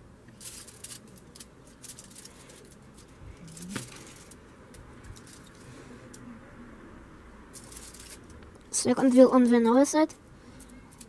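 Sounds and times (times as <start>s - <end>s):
clicks and crinkles of foil: 0.3s - 5.7s, 7.6s - 8.4s.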